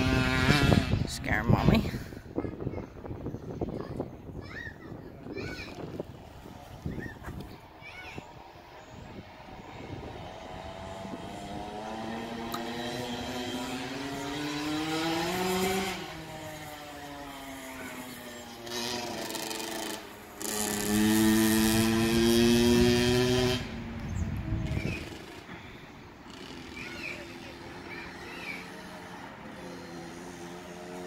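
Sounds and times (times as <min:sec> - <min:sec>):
dirt bike engine revving: 0:00.0 - 0:01.8, 0:08.2 - 0:31.0.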